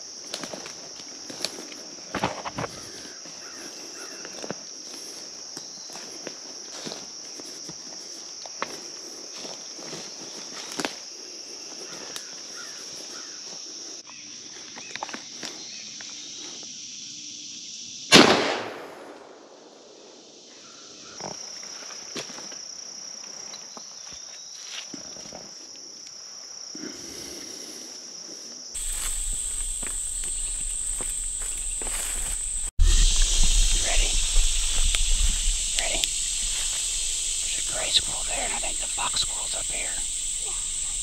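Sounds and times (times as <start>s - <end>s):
insects droning: 0.0s - 41.0s
shotgun shot with echo: 18.1s - 19.5s.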